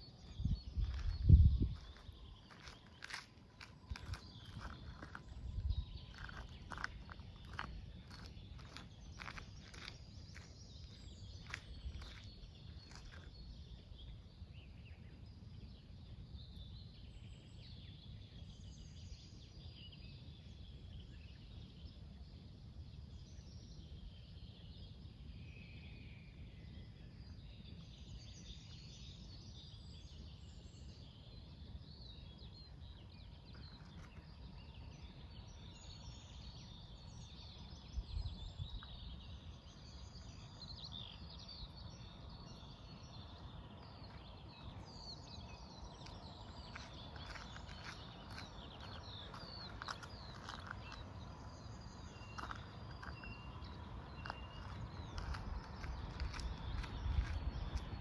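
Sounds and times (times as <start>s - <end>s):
steady low rumble: 0.0s - 14.4s, 42.6s - 58.0s
small birds chirping: 0.0s - 25.7s, 26.8s - 58.0s.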